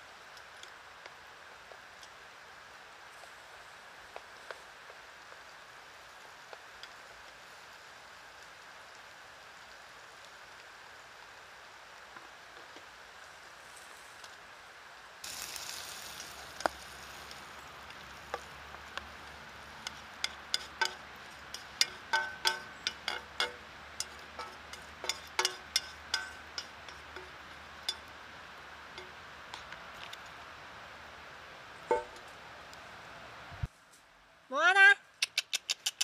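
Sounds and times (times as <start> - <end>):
light rain hissing: 0.0 - 36.0
light metallic clinks: 19.8 - 28.1.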